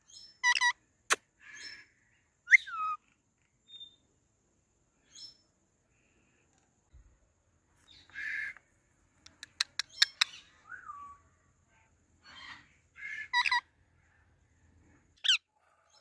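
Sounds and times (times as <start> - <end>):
parakeet squawk: 12.3 - 13.6
parakeets chattering: 12.3 - 13.6.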